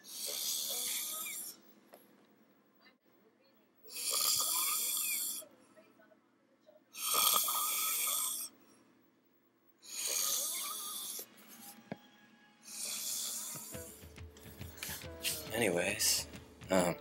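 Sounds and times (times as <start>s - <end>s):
man snoring: 0.0s - 1.4s, 3.9s - 5.4s, 7.0s - 8.5s, 9.8s - 11.3s, 12.7s - 13.8s.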